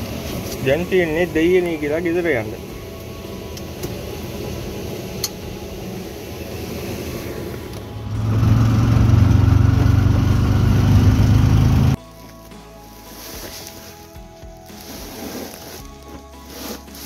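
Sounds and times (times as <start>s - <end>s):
auto-rickshaw engine running: 0.0s - 12.0s.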